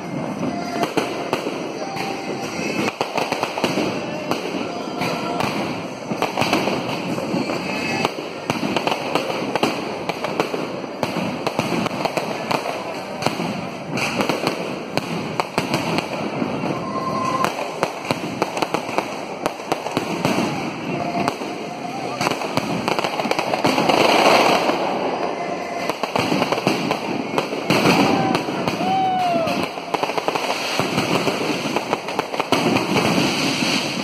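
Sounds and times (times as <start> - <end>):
fireworks cracking and popping: 0.0 - 34.0.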